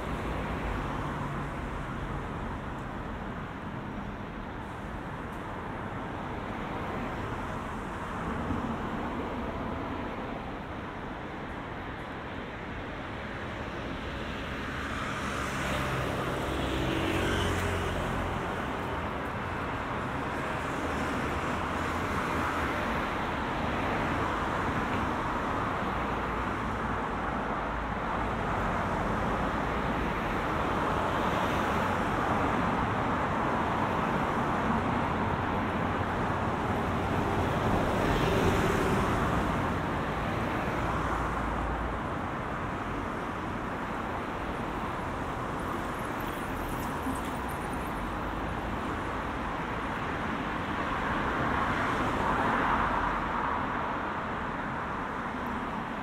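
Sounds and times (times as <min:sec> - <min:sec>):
cars passing: 0:00.0 - 0:56.0
road noise: 0:00.0 - 0:56.0.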